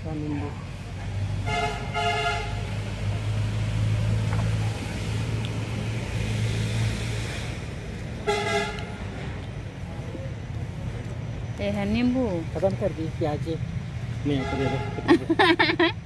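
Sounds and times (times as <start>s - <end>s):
vehicle engine drone: 0.0s - 16.0s
vehicle horn honking: 1.4s - 2.7s, 8.2s - 9.0s, 14.3s - 15.1s.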